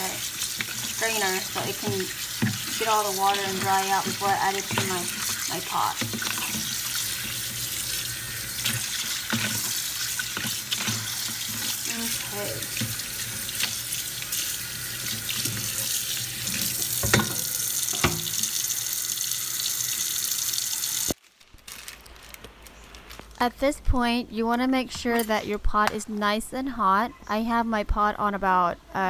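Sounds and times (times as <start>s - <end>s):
tap water running into sink: 0.0s - 21.2s.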